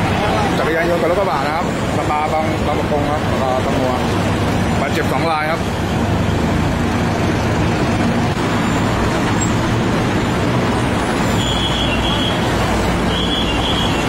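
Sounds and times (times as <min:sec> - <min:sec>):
heavy road traffic passing: 0:00.0 - 0:14.0.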